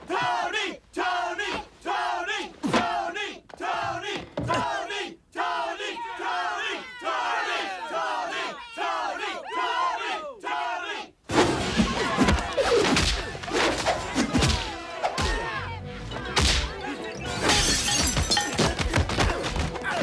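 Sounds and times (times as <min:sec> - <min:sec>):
shouts and grunts: 0:00.0 - 0:11.1, 0:11.9 - 0:17.7
crash of something breaking: 0:11.3 - 0:14.7
punches and kicks: 0:11.3 - 0:15.4, 0:16.4 - 0:16.8, 0:17.4 - 0:20.0
music: 0:13.3 - 0:20.0.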